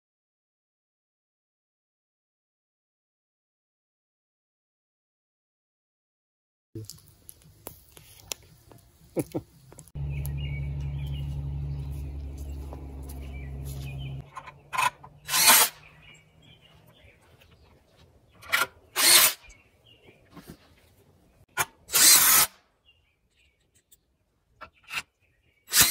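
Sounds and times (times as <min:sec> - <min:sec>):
low hum: 0:09.7 - 0:16.9
impact driver bursts: 0:15.2 - 0:15.8, 0:18.9 - 0:19.4, 0:21.9 - 0:22.6, 0:25.7 - 0:25.9.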